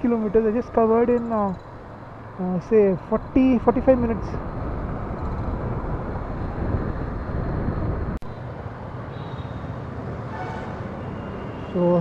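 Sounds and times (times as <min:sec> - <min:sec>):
traffic noise: 0:00.0 - 0:12.0
wind on microphone: 0:04.3 - 0:08.2.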